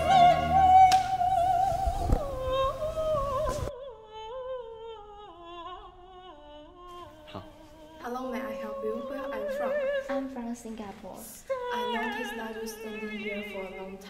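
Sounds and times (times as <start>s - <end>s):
background music: 0.0s - 3.7s
person singing with vibrato: 0.0s - 10.4s.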